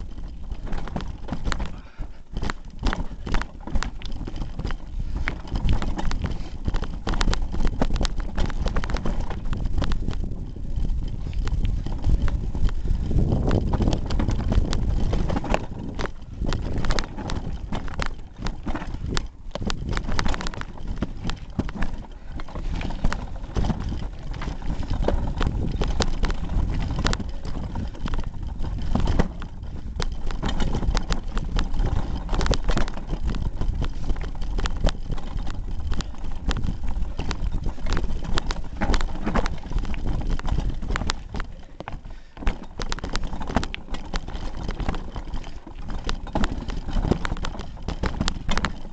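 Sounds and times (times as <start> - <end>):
bike rattling over rocks: 0.0 - 48.9
low rumble of tyres and wind: 0.0 - 48.9.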